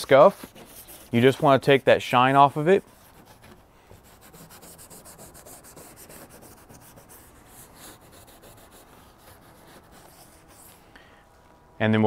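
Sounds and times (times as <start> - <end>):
abrasive pad rubbing fiberglass: 0.0 - 10.8.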